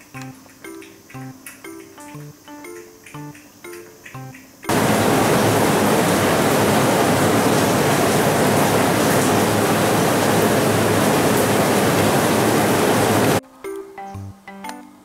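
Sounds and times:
loud steady rushing noise: 4.7 - 13.4.

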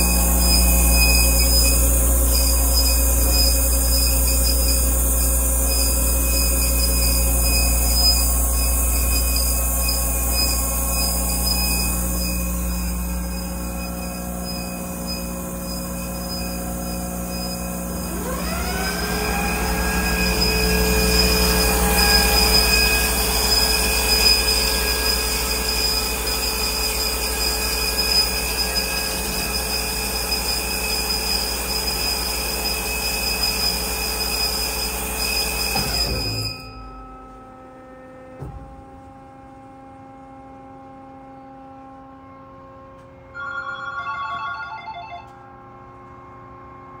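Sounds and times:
bandsaw running: 0.0 - 26.5.

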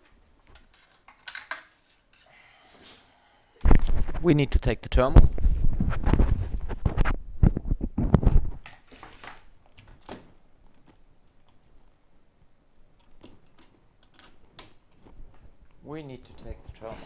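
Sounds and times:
knocks bumps and scrapes: 3.6 - 4.4, 5.1 - 8.6.

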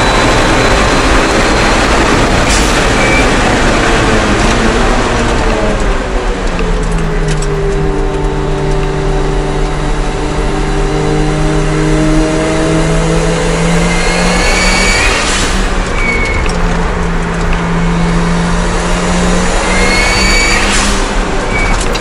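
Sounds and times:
car engine accelerating: 0.0 - 22.0
transmission whine: 0.0 - 22.0
rush of air: 14.0 - 16.3, 19.7 - 21.4.

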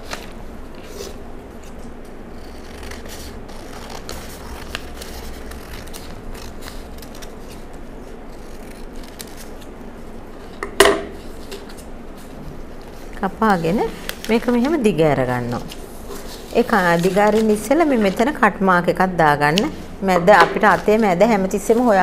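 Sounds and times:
scissors snipping paper: 2.4 - 7.6, 8.3 - 9.7
paper rustling: 11.2 - 18.4.

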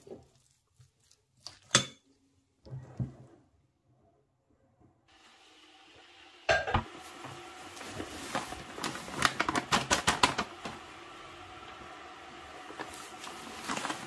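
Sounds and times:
paper bag crinkling: 7.1 - 10.8, 12.5 - 14.0.

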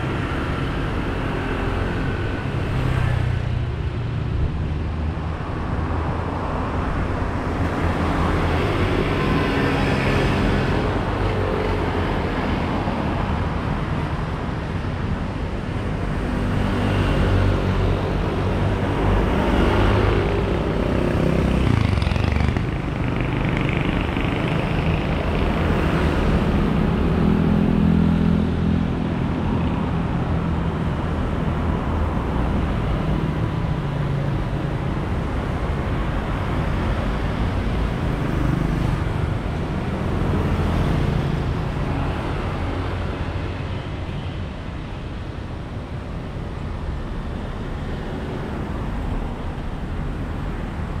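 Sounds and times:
cars passing: 0.0 - 51.0
motorbikes passing: 15.9 - 44.0.

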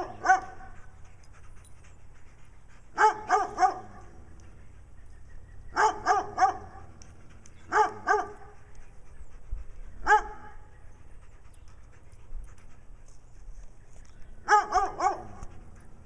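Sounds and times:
dog barking: 0.0 - 0.7, 3.0 - 4.1, 5.8 - 6.8, 7.7 - 8.5, 10.0 - 10.6, 14.5 - 15.5.

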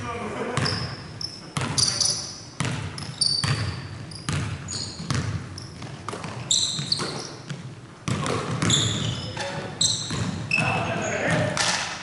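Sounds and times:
sneakers squeaking: 0.5 - 11.6
basketball bouncing on hardwood: 1.6 - 1.8, 2.6 - 11.6.

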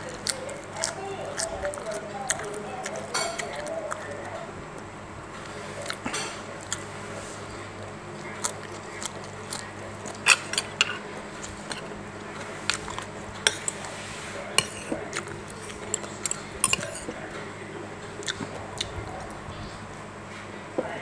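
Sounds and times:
cutlery clinking on a plate: 3.1 - 3.5, 10.2 - 11.0, 14.6 - 15.0, 15.8 - 17.2.

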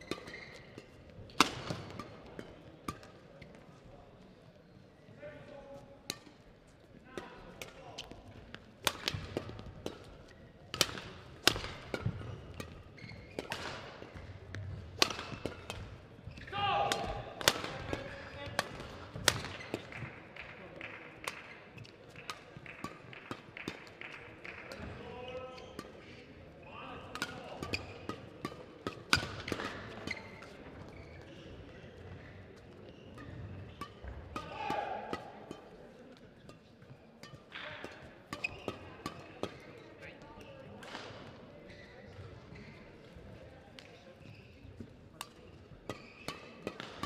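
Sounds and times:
racket hitting shuttlecock: 0.0 - 3.6, 6.1 - 6.4, 7.1 - 20.1, 27.0 - 30.6, 32.1 - 39.8, 45.2 - 47.0.

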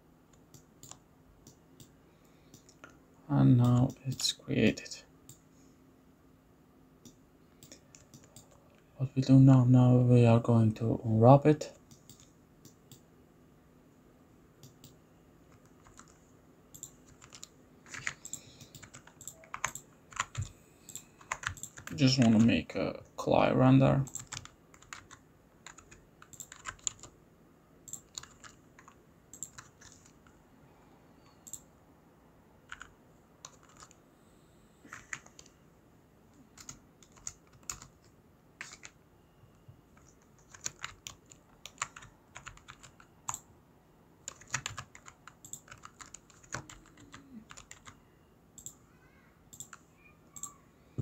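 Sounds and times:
keyboard keys clicking: 14.6 - 22.5, 24.0 - 27.1, 27.9 - 30.2, 32.7 - 34.0, 36.6 - 38.0, 40.0 - 43.4, 44.3 - 48.0.

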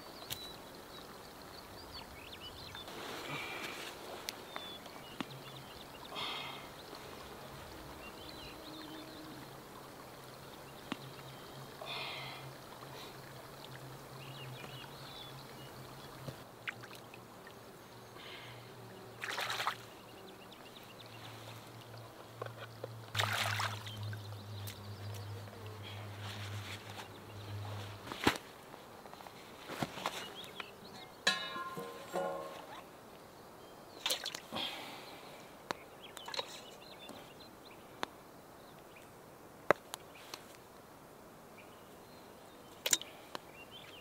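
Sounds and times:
hands splashing in water: 23.2 - 23.9
rustling and handling noises: 26.1 - 32.8.

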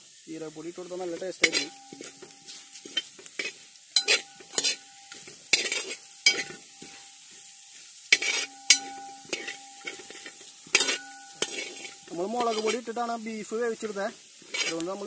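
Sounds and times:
faint frying sizzle: 0.0 - 15.0
metal spoon scraping a pan: 1.0 - 13.0, 13.7 - 15.0
pan ringing: 1.4 - 2.9, 4.0 - 5.4, 8.4 - 12.8.

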